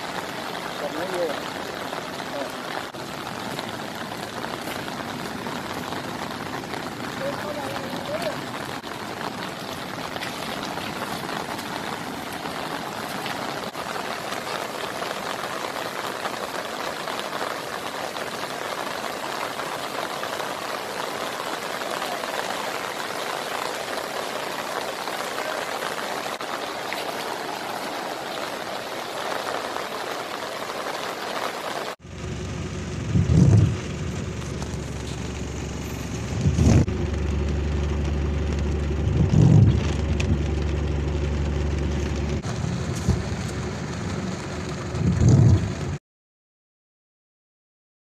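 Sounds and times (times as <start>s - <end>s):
floodwater rushing: 0.0s - 46.0s
rain falling: 0.0s - 46.0s.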